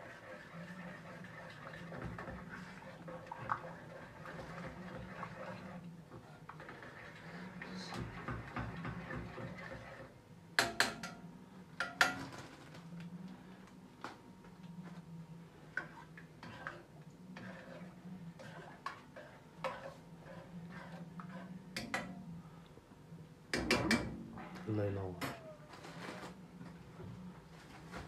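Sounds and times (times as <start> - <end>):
steady low hum: 10.1 - 25.8
spoon clinking and scraping pot: 17.4 - 22.1.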